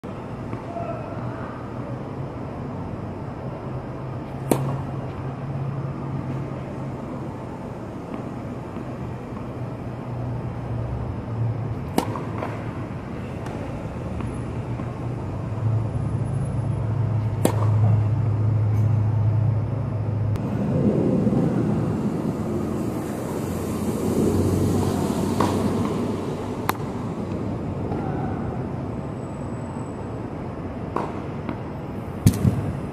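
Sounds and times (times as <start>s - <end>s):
low rumble of city traffic: 0.0s - 32.9s
tennis racket hitting ball: 4.4s - 4.8s, 11.8s - 12.7s.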